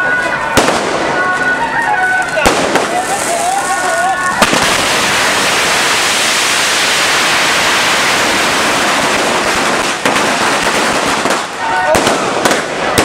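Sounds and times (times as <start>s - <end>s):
firecrackers crackling: 0.0s - 13.0s
sharp firecracker cracks: 2.2s - 5.9s, 8.2s - 13.0s.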